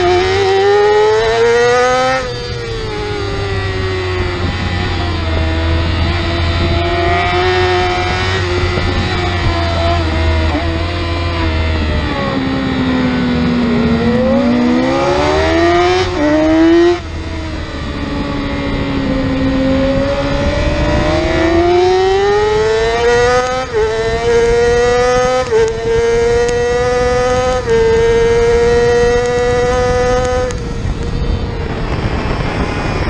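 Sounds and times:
race motorcycle engine: 0:00.0 - 0:33.0
wind rush: 0:00.0 - 0:33.0.

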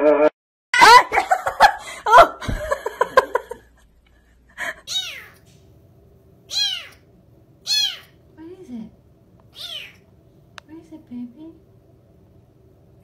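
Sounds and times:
person laughing: 0:00.8 - 0:03.8
cat meowing: 0:04.9 - 0:05.4, 0:06.5 - 0:07.0, 0:07.6 - 0:08.2, 0:09.5 - 0:10.0.

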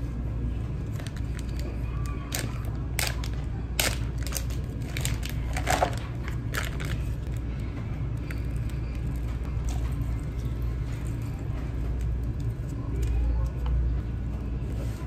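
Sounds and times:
steady low hum: 0:00.0 - 0:15.0
plastic packaging crinkling: 0:00.8 - 0:12.8.

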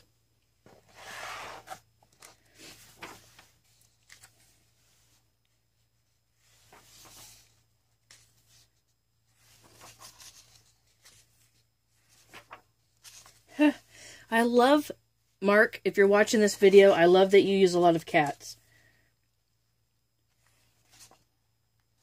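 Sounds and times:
faint low hum: 0:00.0 - 0:22.0
paper pages being turned: 0:00.6 - 0:05.3, 0:06.4 - 0:13.5, 0:20.3 - 0:21.3.

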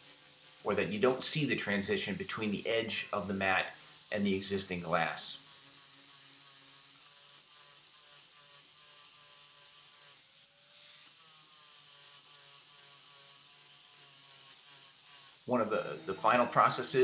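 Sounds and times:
angle grinder sanding: 0:00.0 - 0:17.0.

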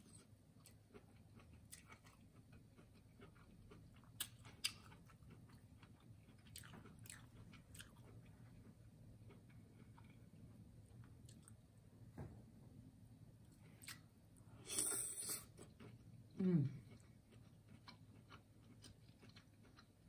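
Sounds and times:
chewing corn on the cob: 0:00.0 - 0:11.6, 0:14.8 - 0:20.0.

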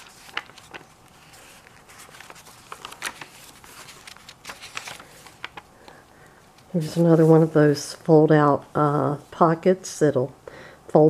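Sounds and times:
paper pages rustling: 0:00.0 - 0:07.6.

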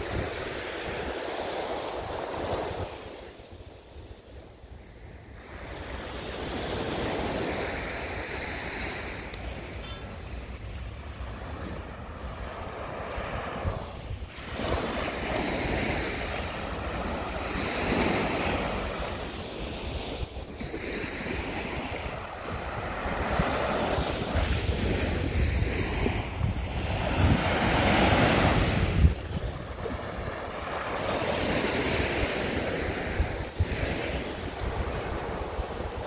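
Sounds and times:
waves washing onto a beach: 0:00.0 - 0:36.0
wind rumbling on microphone: 0:00.0 - 0:36.0.

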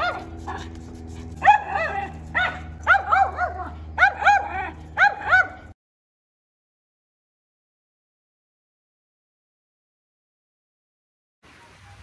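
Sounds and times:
small dog barking high-pitched: 0:00.0 - 0:00.7, 0:01.4 - 0:05.7.

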